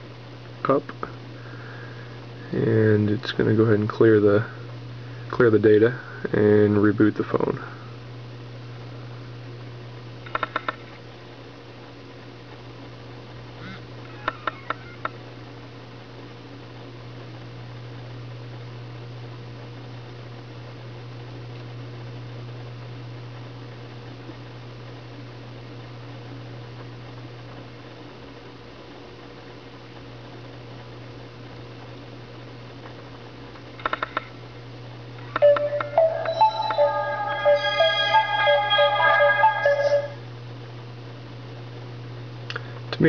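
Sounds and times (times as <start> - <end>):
low electrical hum: 0.0 - 43.0
sharp ringing clicks: 35.3 - 39.9.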